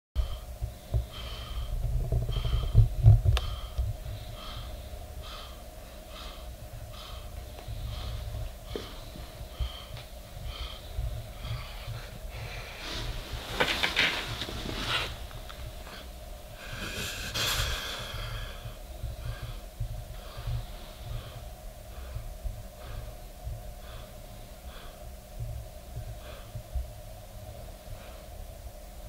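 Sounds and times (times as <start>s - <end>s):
dog breathing heavily: 0.2s - 26.9s
faint steady hum: 0.2s - 29.0s
rustling: 7.0s - 18.0s.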